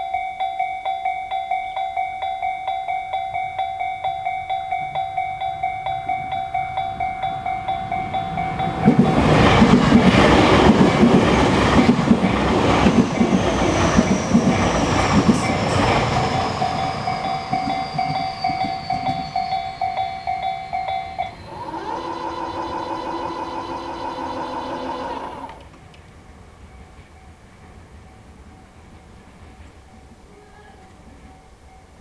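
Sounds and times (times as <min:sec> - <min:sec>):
level crossing warning bell: 0:00.0 - 0:25.6
high train whine: 0:00.0 - 0:32.0
train wheels clacking: 0:00.9 - 0:26.2.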